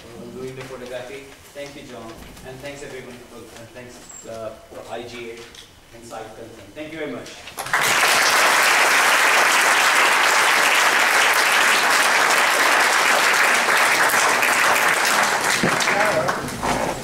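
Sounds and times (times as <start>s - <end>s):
audience applauding: 7.6s - 17.0s.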